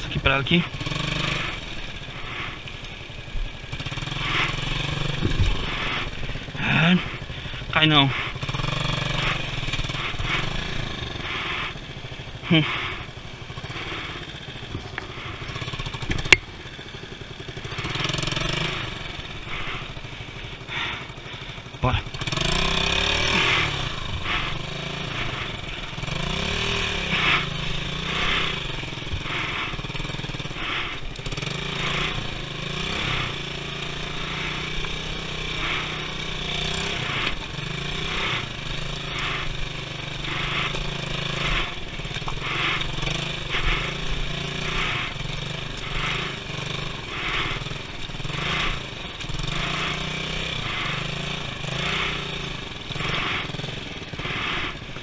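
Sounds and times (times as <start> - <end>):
motorcycle engine under load: 0.0 - 55.0.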